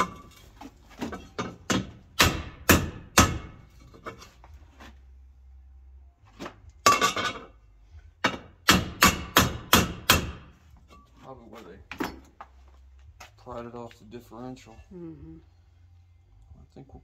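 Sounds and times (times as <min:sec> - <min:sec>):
hammer striking metal: 0:01.4 - 0:03.7, 0:08.2 - 0:10.6.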